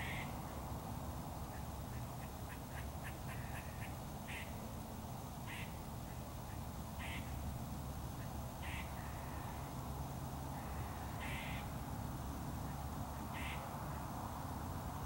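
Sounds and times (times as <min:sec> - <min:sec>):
low background noise: 0:00.0 - 0:15.0
bird calls: 0:05.5 - 0:07.4, 0:08.2 - 0:09.4, 0:12.7 - 0:13.7.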